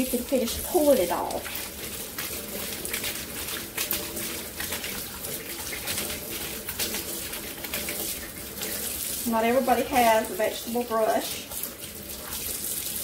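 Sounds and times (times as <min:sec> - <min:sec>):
tap water running into steel sink: 0:00.0 - 0:13.0.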